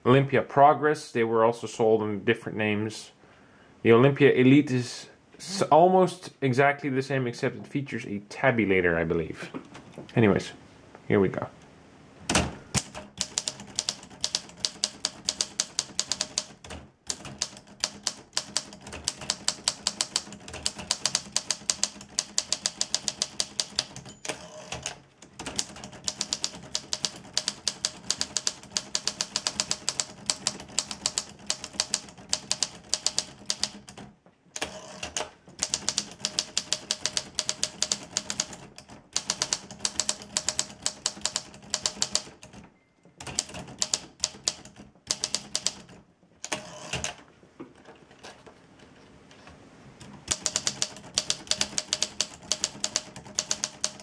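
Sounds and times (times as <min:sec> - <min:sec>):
typewriter typing: 0:12.8 - 0:42.6, 0:43.2 - 0:47.2, 0:50.2 - 0:54.0
faint typewriter bell: 0:17.4 - 0:24.4, 0:50.3 - 0:54.0.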